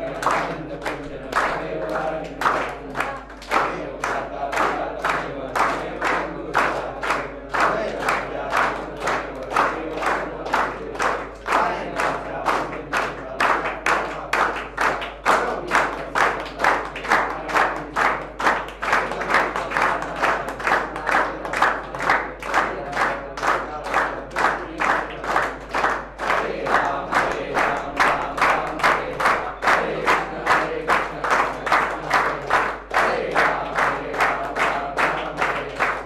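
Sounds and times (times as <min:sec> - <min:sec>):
people clapping in unison: 0:00.0 - 0:36.0.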